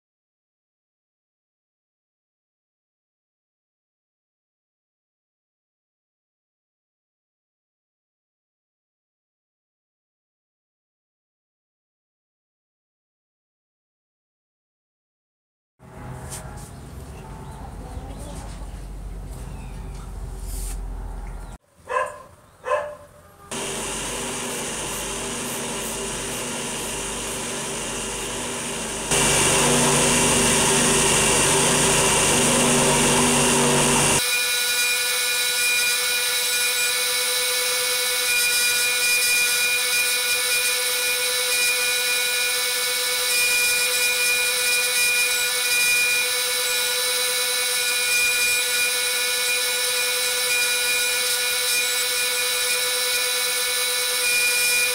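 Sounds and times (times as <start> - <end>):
electric motor buffing wheel whine: 23.5 - 54.9.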